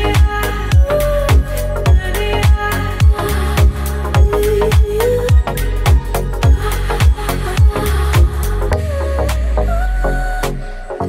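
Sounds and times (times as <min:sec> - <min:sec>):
electronic dance music: 0:00.0 - 0:08.6
sustained bass line: 0:00.0 - 0:11.0
steady kick drum beat: 0:00.1 - 0:08.5.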